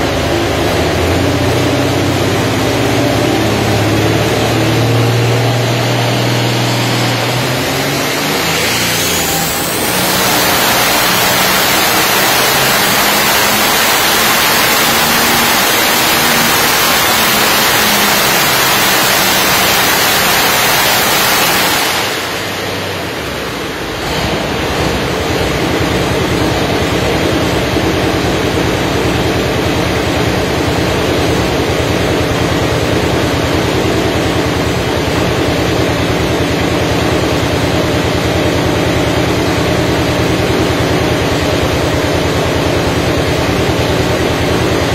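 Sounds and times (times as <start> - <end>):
tractor engine roaring: 0.0 - 44.9.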